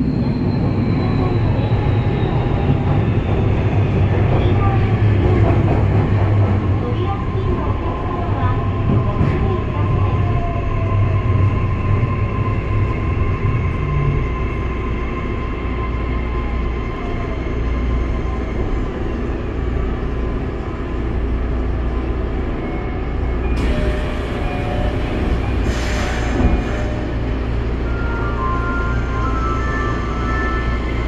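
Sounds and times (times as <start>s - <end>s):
train wheel and motor rumble: 0.0s - 31.0s.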